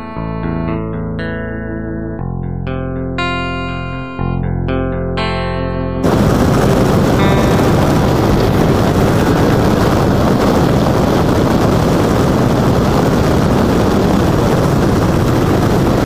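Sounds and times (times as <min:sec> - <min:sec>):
wind noise over microphone: 0:06.0 - 0:16.0
motorcycle engine and tyres: 0:06.1 - 0:16.0.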